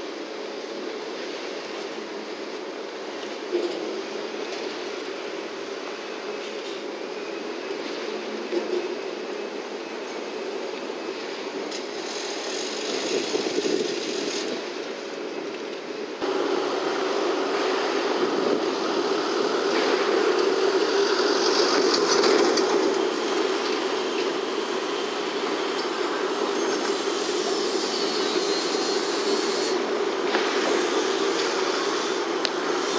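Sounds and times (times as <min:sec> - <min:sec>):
distant vehicle rumble: 0:16.2 - 0:32.9.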